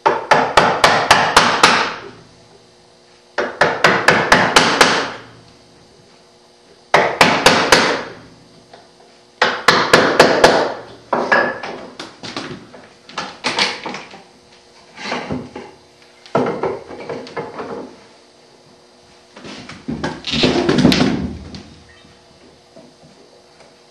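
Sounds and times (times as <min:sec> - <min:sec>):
wooden knocks and clatter: 0:16.3 - 0:18.0.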